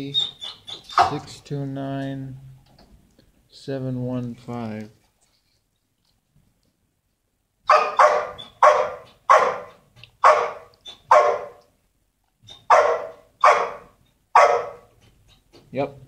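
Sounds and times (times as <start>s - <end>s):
dog barking: 7.7s - 11.6s, 12.6s - 14.9s.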